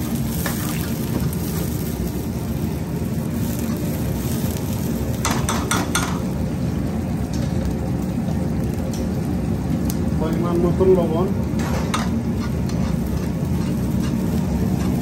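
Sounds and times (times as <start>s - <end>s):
low kitchen rumble: 0.0s - 15.0s
spices frying in oil: 0.0s - 15.0s.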